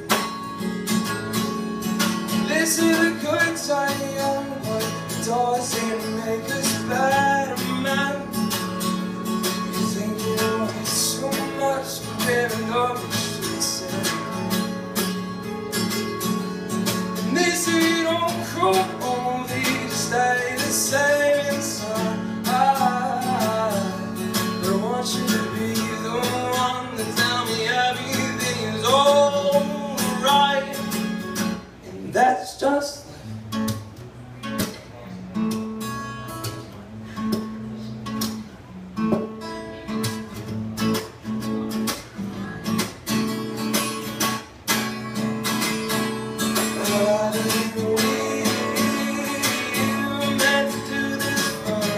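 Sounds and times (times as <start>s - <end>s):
acoustic guitar strumming: 0.0s - 51.9s
man singing: 2.1s - 14.8s, 16.8s - 31.2s, 31.8s - 33.2s, 45.9s - 51.9s.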